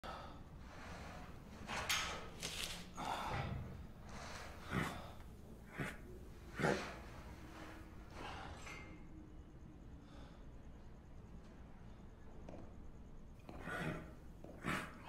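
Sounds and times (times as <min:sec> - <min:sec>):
breathy snorts and exhales: 0:00.1 - 0:08.9, 0:13.4 - 0:15.0.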